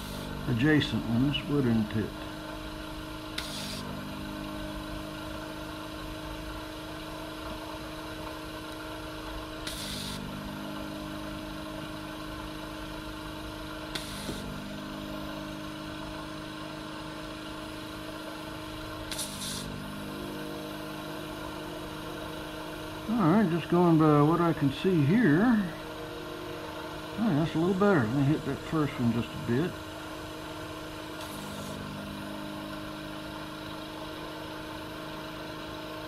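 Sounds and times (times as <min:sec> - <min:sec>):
vacuum pump humming: 0:00.0 - 0:36.0
hissing sucks of air: 0:03.4 - 0:03.9, 0:09.6 - 0:10.3, 0:13.9 - 0:14.5, 0:19.1 - 0:19.7.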